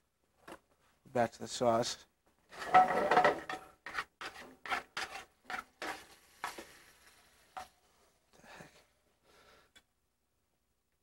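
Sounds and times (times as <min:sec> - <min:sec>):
sauce stirred in pan: 0:02.5 - 0:08.2.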